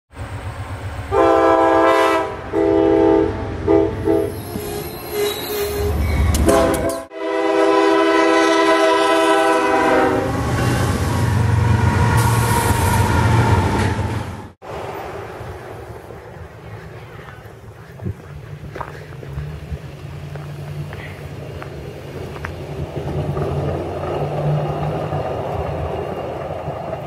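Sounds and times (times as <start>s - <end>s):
locomotive air horn blasts: 1.1s - 4.4s, 6.4s - 10.9s
locomotive passing with deep rumble: 5.8s - 27.0s.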